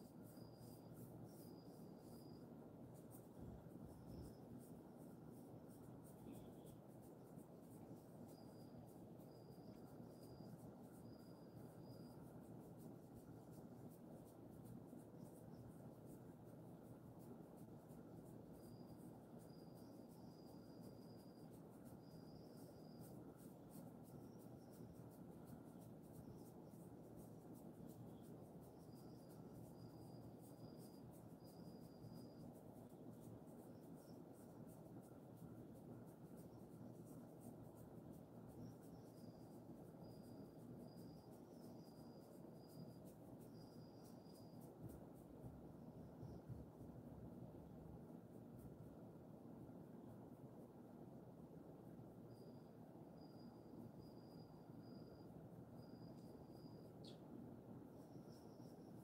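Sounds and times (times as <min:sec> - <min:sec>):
fingers rubbing dog fur: 0:00.0 - 0:47.0
faint high chirp: 0:00.0 - 0:59.0
low steady hiss: 0:00.0 - 0:59.0.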